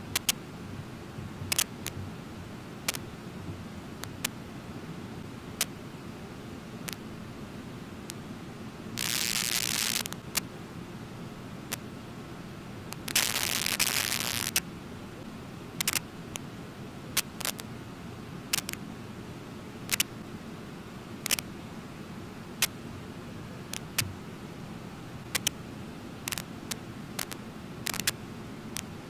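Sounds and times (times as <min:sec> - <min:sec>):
sharp clicks: 0:00.0 - 0:00.4, 0:01.5 - 0:02.0, 0:15.8 - 0:16.0, 0:18.5 - 0:18.8, 0:19.9 - 0:20.1, 0:21.2 - 0:21.4, 0:25.3 - 0:25.6, 0:27.2 - 0:28.2
bursts of hiss: 0:09.0 - 0:10.4, 0:13.0 - 0:14.6.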